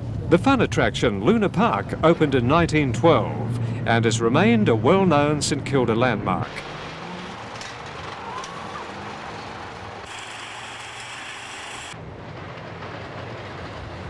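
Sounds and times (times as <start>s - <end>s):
roller coaster clattering on track: 0.5s - 14.0s
hissy rush of passing car: 8.2s - 12.0s.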